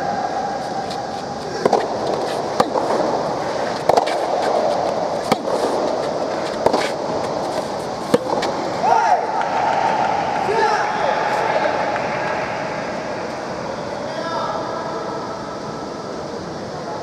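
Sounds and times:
background noise: 0.0 - 17.0
tennis ball struck by rackets: 1.6 - 8.6.

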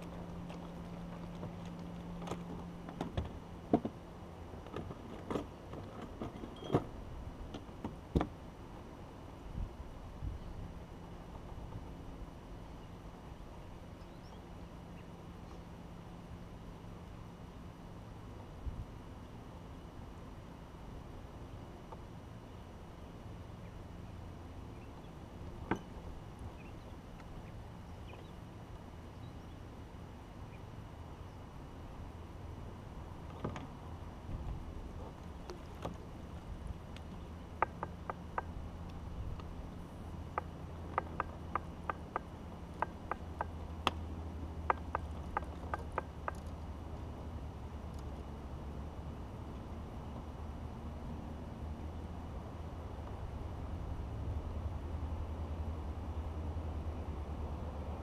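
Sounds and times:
low steady hum: 0.0 - 58.0
wind and water rumble: 0.0 - 58.0
gear knocking in plastic kayak: 44.6 - 46.6.

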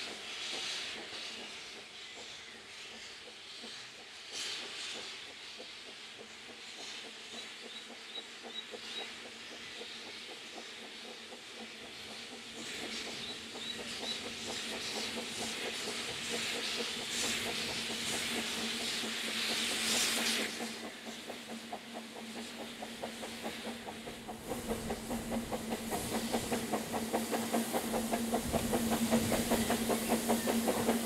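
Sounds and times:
rhythmic train clatter: 0.0 - 31.0
steam locomotive hissing: 0.0 - 31.0.

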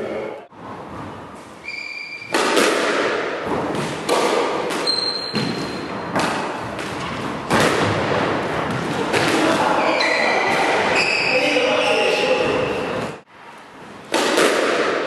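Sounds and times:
shoes squeaking on wooden floor: 1.3 - 2.3, 4.8 - 6.2
squash ball hits: 2.1 - 11.0, 14.1 - 15.0.

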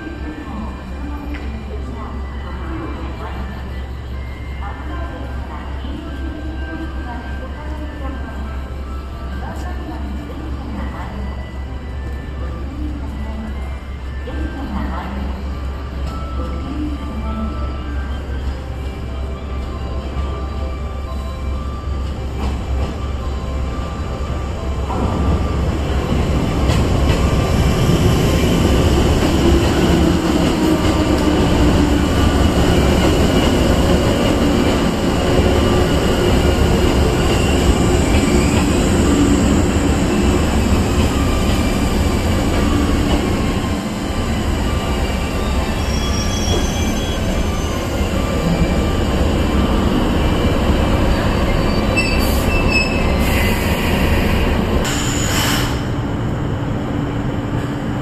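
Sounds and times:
train wheels rumbling: 24.7 - 58.0.

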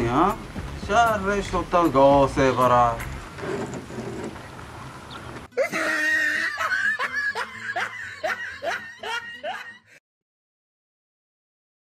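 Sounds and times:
laughter in short bursts: 5.6 - 9.8.

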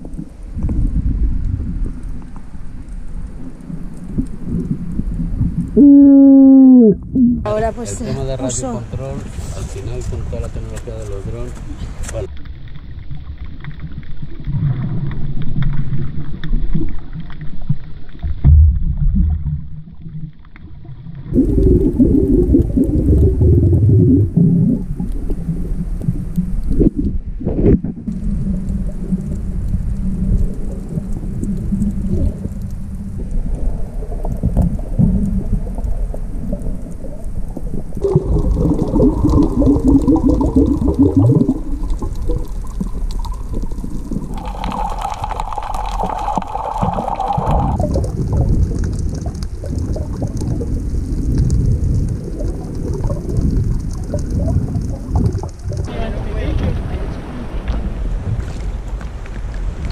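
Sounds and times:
muffled underwater rumble: 0.0 - 59.9
humming tones: 5.7 - 7.5.

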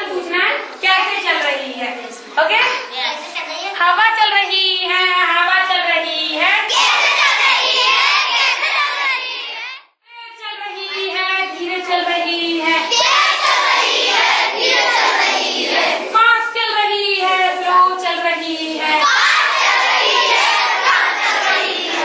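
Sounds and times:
children singing together: 6.7 - 9.8, 12.6 - 16.2, 18.3 - 22.0.

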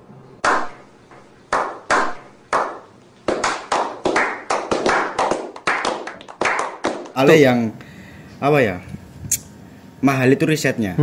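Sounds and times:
group hand clapping: 0.4 - 0.8, 1.5 - 7.3.

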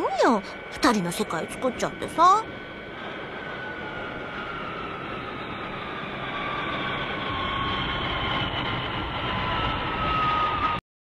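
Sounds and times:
faint high whines: 0.0 - 10.8
low rumble: 0.0 - 10.8.

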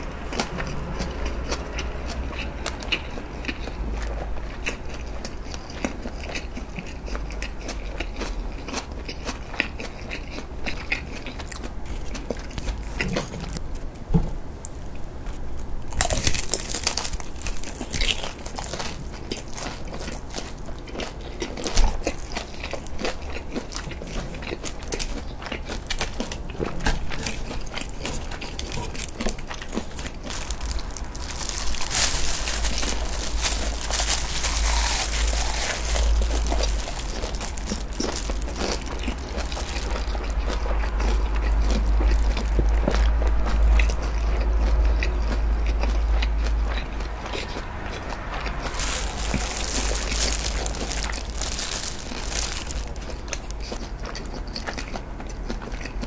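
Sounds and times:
crisp bite and crunchy chewing: 0.0 - 13.6, 14.6 - 56.0
wet chewing clicks: 15.9 - 56.0.

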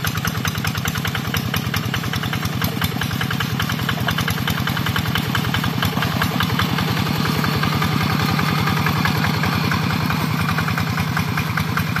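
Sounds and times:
diesel engine chugging: 0.0 - 12.0.

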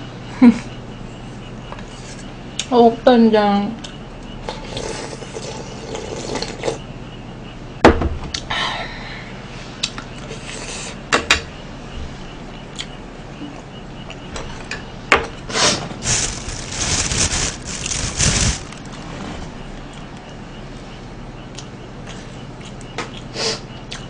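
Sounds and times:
rustling leafy greens: 16.0 - 19.2.

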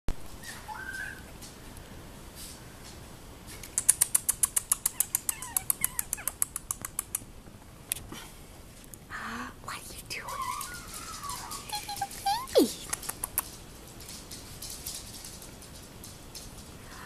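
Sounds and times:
puppy squeaking: 0.4 - 1.3, 3.8 - 7.1, 10.3 - 13.5
puppy whining: 0.4 - 1.4, 3.6 - 6.9, 10.2 - 13.5
rapid sharp clicks: 3.6 - 7.3.

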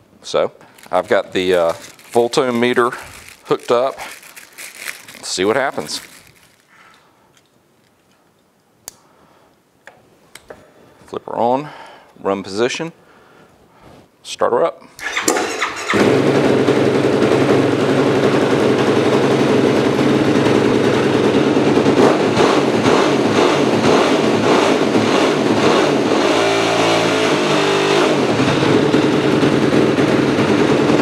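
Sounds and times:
electric starter cranking: 15.0 - 17.0
engine idling: 15.1 - 22.1.

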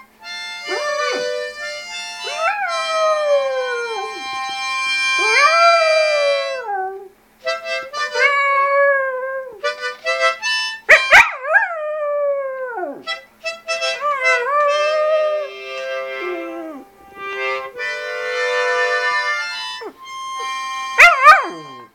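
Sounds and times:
harmonica chords: 0.0 - 8.9, 9.6 - 11.3, 13.0 - 21.9
dog howling: 0.6 - 1.6, 2.2 - 4.4, 5.1 - 7.1, 8.1 - 9.6, 11.0 - 13.0, 13.9 - 16.9, 19.8 - 21.9.

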